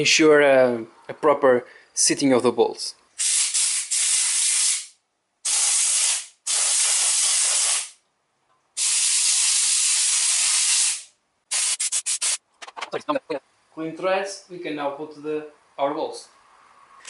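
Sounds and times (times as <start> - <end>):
compressed air blow gun hissing: 3.2 - 4.9, 5.5 - 8.0, 8.8 - 12.4.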